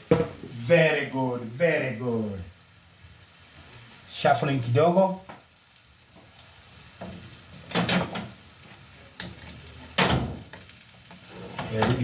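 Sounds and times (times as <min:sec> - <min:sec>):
omelette sizzling in a frying pan: 0:00.0 - 0:12.0
spatula scraping a pan: 0:11.0 - 0:12.0.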